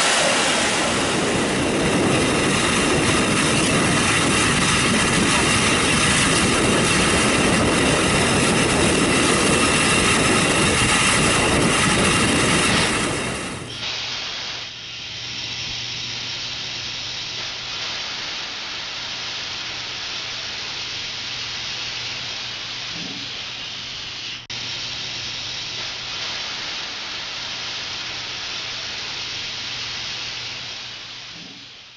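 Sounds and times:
low hum: 0:00.0 - 0:19.7
steam locomotive hissing: 0:00.0 - 0:31.9.

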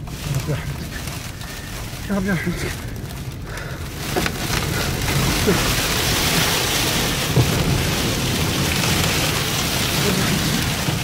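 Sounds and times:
low car rumble: 0:00.0 - 0:11.0.

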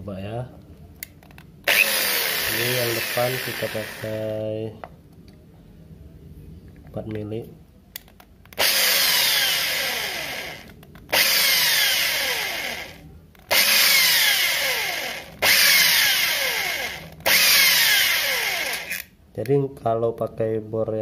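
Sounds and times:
electric drill drilling metal: 0:01.7 - 0:04.3, 0:08.6 - 0:19.1.

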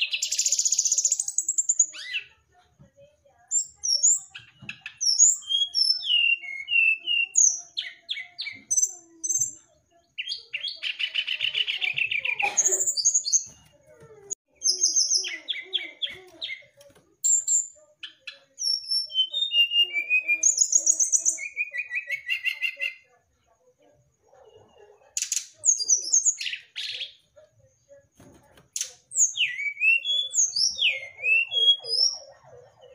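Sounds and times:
bird singing whistled notes: 0:29.2 - 0:32.2.

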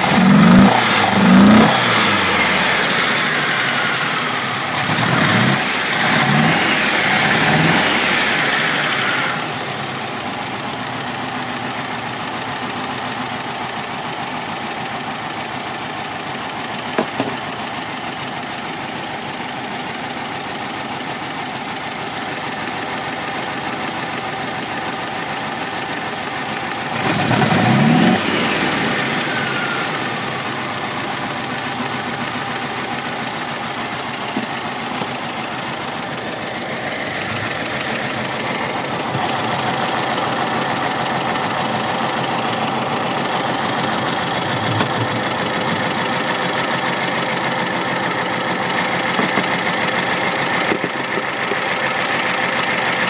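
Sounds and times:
car engine running: 0:00.0 - 0:53.0.

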